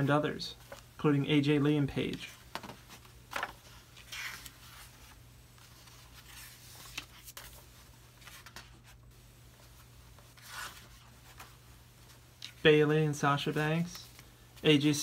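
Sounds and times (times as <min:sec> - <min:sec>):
book pages turning: 0:00.6 - 0:01.0, 0:02.0 - 0:12.6.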